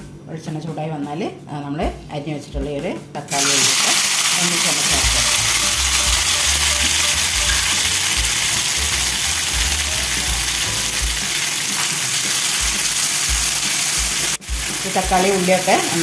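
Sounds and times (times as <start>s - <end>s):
vegetables sizzling in oil: 3.3s - 16.0s.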